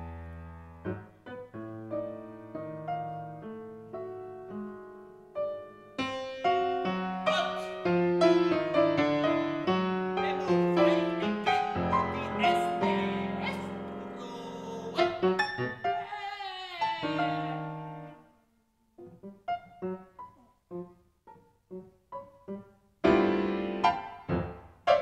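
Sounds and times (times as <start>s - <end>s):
avant-garde solo piano: 0.0s - 16.1s.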